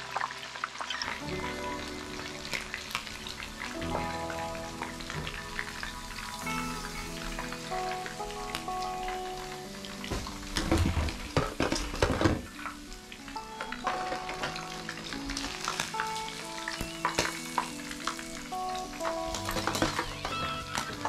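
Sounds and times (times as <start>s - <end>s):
background music: 0.0s - 21.0s
fish sizzling in hot oil: 0.0s - 21.0s.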